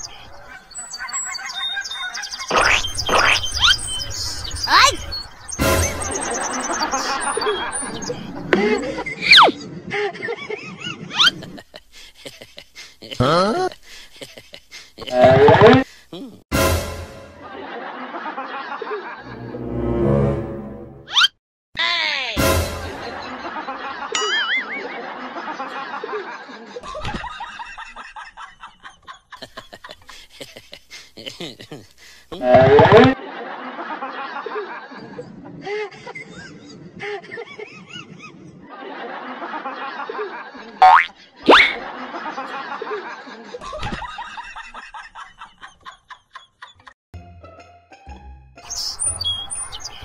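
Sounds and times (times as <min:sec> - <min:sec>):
person laughing: 0:06.4 - 0:16.4, 0:29.4 - 0:33.2
short laughter-like notes: 0:14.5 - 0:16.4, 0:30.6 - 0:33.2
warbling tone: 0:15.0 - 0:15.8, 0:32.4 - 0:33.2.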